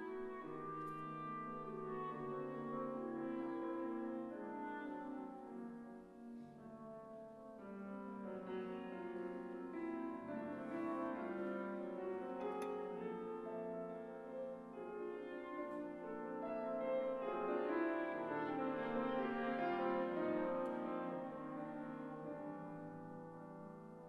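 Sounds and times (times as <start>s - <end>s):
piano playing: 0.0s - 24.0s
clarinet holding long notes: 0.1s - 6.8s.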